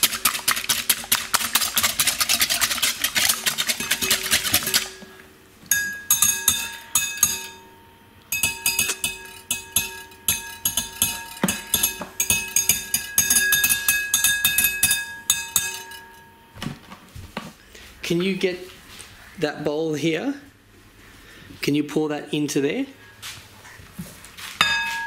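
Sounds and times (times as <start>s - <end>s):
whisk clinking in glass bowl: 0.0s - 16.4s.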